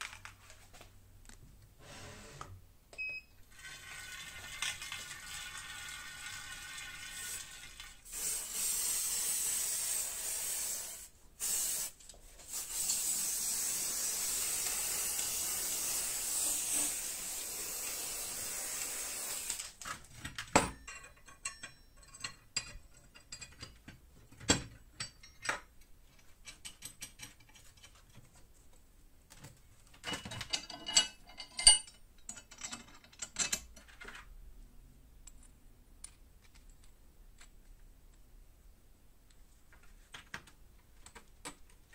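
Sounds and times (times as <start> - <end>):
spray paint can hissing: 8.1 - 19.7
steel parts clinking: 20.7 - 24.0, 30.0 - 34.1.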